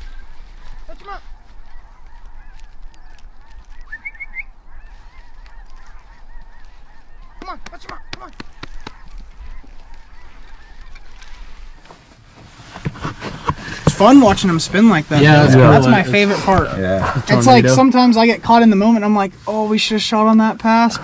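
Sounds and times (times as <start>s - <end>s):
flock of geese honking: 0.0s - 11.9s.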